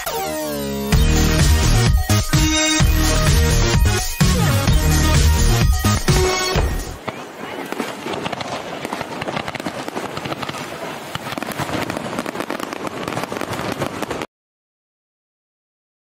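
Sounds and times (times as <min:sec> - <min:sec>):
fireworks cracking and popping: 0:05.7 - 0:14.3.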